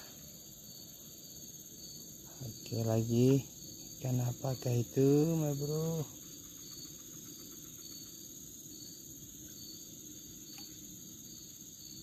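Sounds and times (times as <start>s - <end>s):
insect chirping: 0.0s - 12.0s
low steady hiss: 0.0s - 12.0s
faint click: 10.5s - 10.7s.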